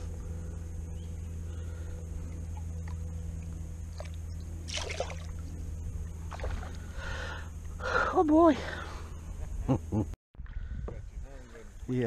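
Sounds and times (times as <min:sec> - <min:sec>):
steady low rumble: 0:00.0 - 0:12.0
fish splashing into water: 0:03.9 - 0:05.4, 0:06.3 - 0:06.8.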